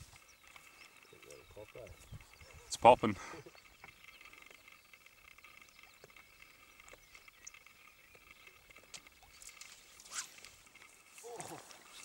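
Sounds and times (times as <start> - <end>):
steady high-pitched hum: 0.0 - 12.0
small clicks: 3.5 - 11.3.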